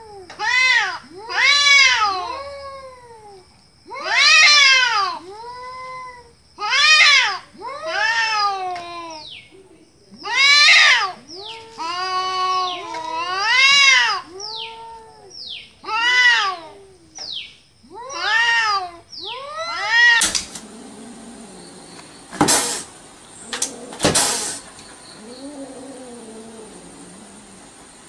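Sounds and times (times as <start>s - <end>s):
cat yowling: 0.0s - 9.3s, 10.2s - 17.1s, 17.9s - 27.9s
cat squealing: 18.0s - 27.9s
short noisy bursts: 21.8s - 25.3s.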